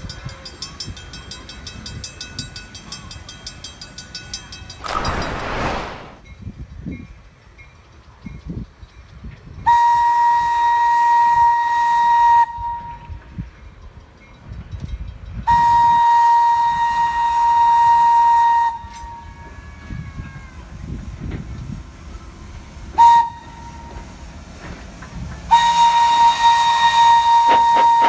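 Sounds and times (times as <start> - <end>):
train whistle blasts: 9.6 - 13.2, 15.4 - 20.8, 22.9 - 24.0, 25.5 - 28.0.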